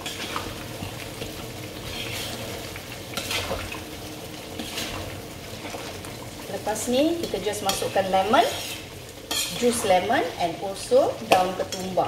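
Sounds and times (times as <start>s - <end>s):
spoon scraping a pan: 0.0s - 0.5s, 1.8s - 3.8s, 4.5s - 5.9s, 7.1s - 10.6s, 11.2s - 12.0s
low sizzle: 0.0s - 12.0s.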